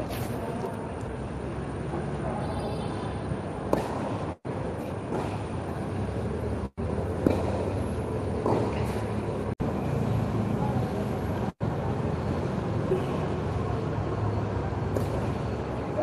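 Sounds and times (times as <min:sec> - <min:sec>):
tennis racket hitting ball: 0:07.1 - 0:07.8, 0:08.4 - 0:09.0.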